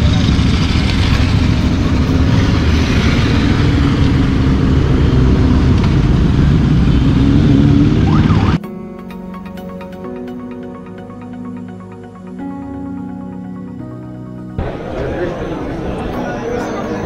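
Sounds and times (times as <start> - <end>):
motorcycles rumbling past: 0.0 - 8.6.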